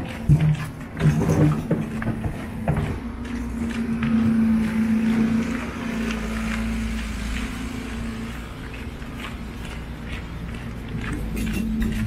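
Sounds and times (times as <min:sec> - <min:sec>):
engine humming: 0:00.0 - 0:12.0
footsteps on snow and ice: 0:00.0 - 0:12.0.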